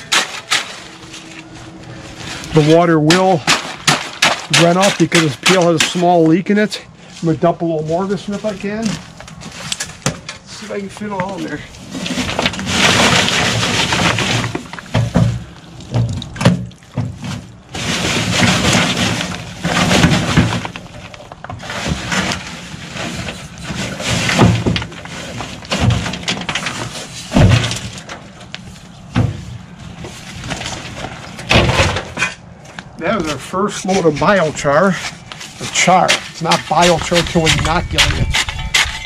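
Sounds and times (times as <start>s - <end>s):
wood char clattering into plastic tote: 2.5s - 6.3s.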